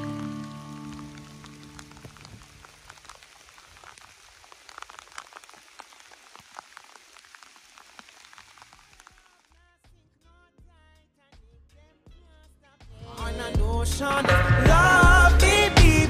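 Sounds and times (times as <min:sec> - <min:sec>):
rain hissing: 0:00.0 - 0:09.6
raindrops ticking: 0:00.0 - 0:09.6.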